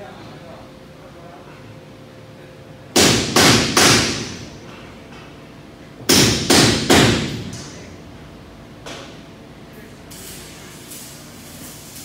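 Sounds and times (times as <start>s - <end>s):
hammer striking metal: 3.0s - 4.4s.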